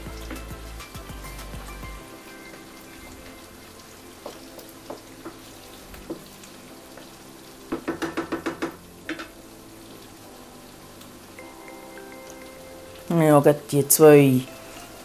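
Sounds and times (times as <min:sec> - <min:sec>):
faint steady sizzle: 0:00.0 - 0:15.0
spatula knocking against pan: 0:07.7 - 0:09.4.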